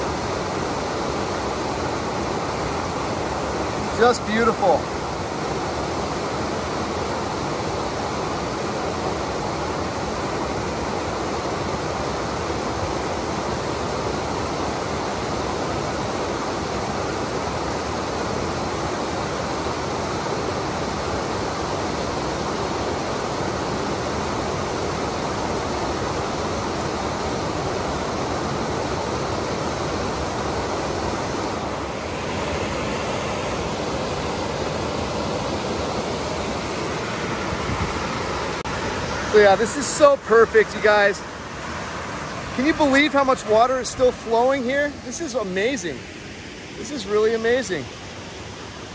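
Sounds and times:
water rushing over rocks: 0.0 - 48.9.

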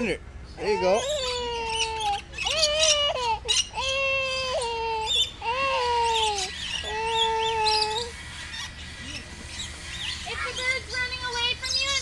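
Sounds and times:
small birds chirping: 0.0 - 12.0
young child crying: 0.6 - 8.1.

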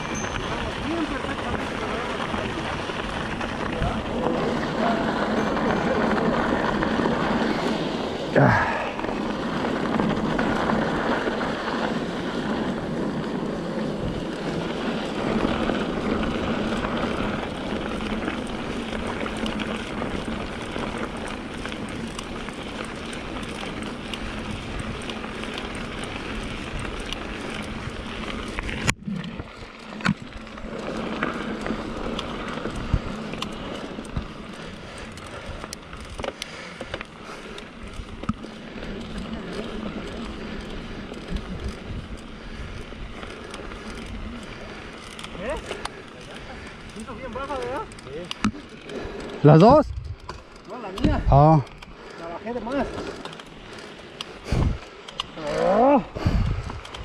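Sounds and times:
bike clicks and rattles: 0.0 - 57.0
bike tyre rolling on dirt: 0.0 - 57.0
wind noise on microphone: 49.7 - 50.4, 54.4 - 54.9, 56.1 - 57.0.

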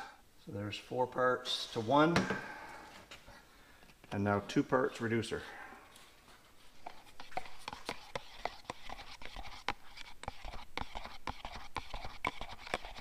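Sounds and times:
stick scraping plastic cup: 6.8 - 13.0.

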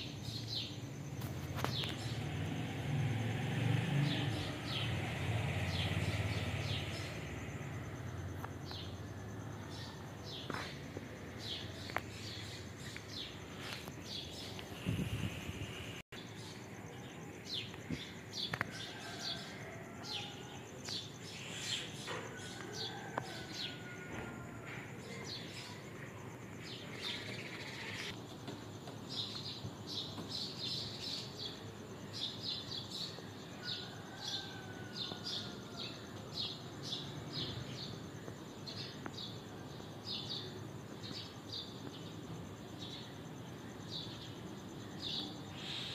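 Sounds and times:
small birds chirping: 9.6 - 19.8.

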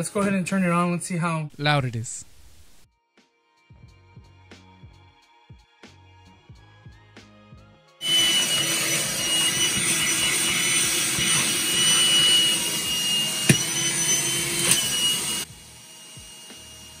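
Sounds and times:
handheld vacuum running: 8.0 - 17.0.

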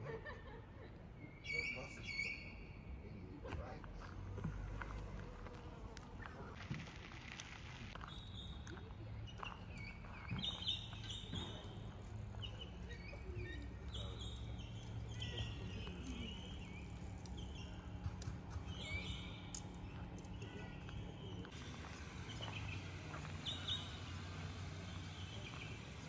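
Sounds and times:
low outdoor hum: 0.0 - 26.0
birds chirping and calling: 1.4 - 2.6, 9.2 - 26.0.

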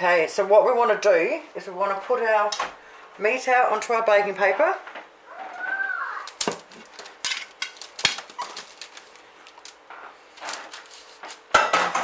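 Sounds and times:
paper rustling: 6.2 - 11.5.

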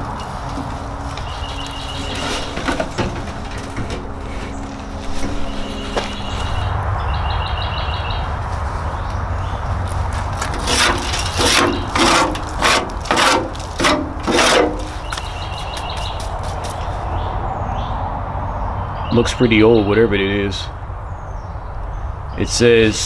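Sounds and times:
hand scraping rusted metal can: 0.0 - 6.7, 10.1 - 16.9
steady low rumble: 0.0 - 18.8.

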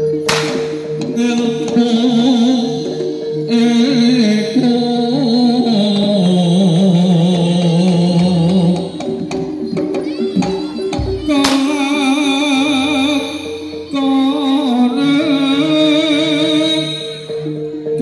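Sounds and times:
percussion ensemble playing: 0.0 - 17.6
sharp crack: 0.3 - 1.1, 11.4 - 11.8.

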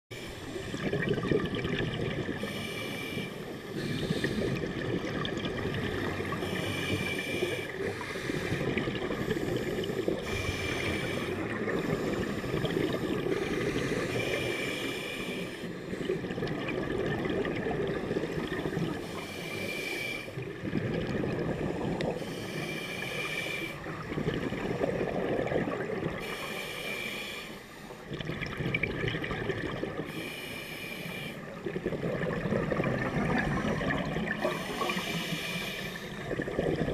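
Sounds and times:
exhaled bubbles rumbling: 0.1 - 2.7, 3.4 - 14.6, 15.8 - 19.1, 20.4 - 22.3, 23.8 - 26.4, 28.1 - 30.2, 31.5 - 35.4, 36.1 - 36.9
regulator hissing inhale: 2.3 - 4.7, 6.0 - 16.2, 18.1 - 20.4, 21.7 - 23.9, 26.2 - 28.1, 30.0 - 31.6, 34.4 - 36.4.

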